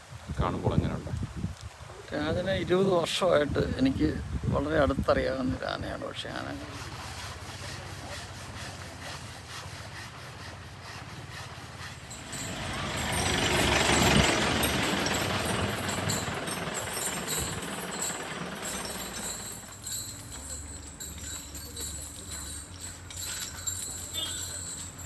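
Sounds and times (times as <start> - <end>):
vehicle engine passing by: 11.0 - 25.0
steady low engine hum: 11.8 - 25.0.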